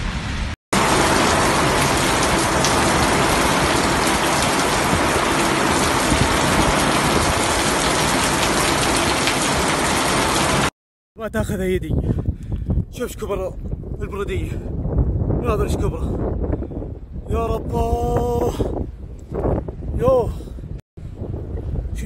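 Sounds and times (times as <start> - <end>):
heavy rain on pavement: 0.0 - 10.7.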